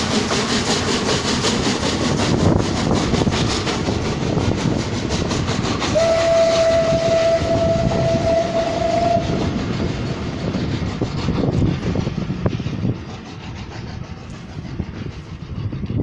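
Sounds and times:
train coaches rolling on rails: 0.0 - 16.0
locomotive whistle: 5.9 - 9.6.

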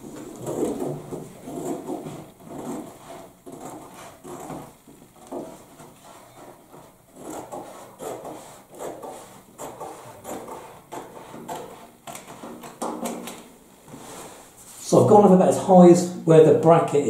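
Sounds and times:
scissors snipping wallpaper: 0.3 - 13.5.

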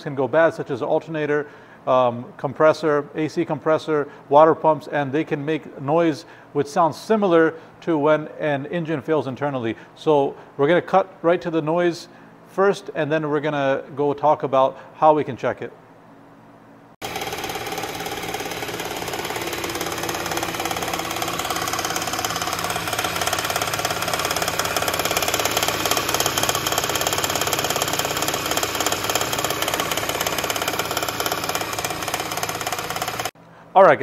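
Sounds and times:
car engine running: 17.0 - 33.4
hard rapid engine knocking: 17.0 - 33.4.

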